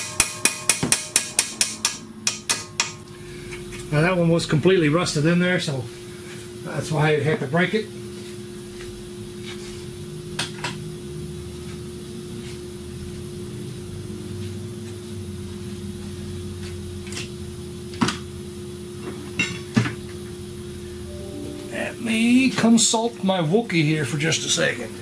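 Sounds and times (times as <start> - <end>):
tools knocking: 0.0 - 3.0
low machine hum: 20.3 - 24.2.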